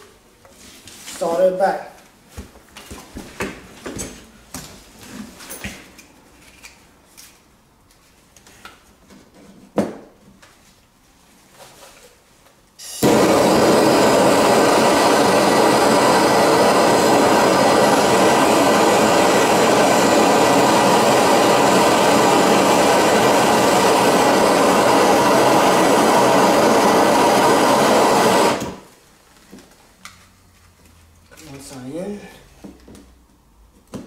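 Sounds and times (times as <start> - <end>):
gas torch hissing: 12.8 - 28.9.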